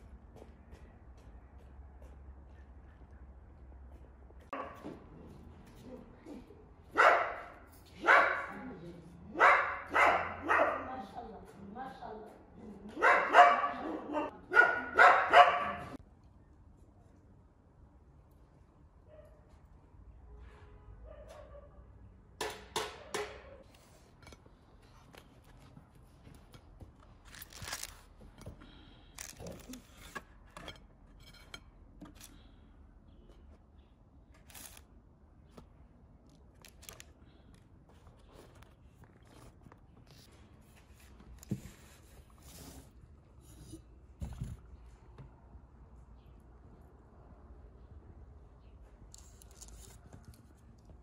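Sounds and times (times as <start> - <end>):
light clicks and rustles of handling: 48.6 - 51.0.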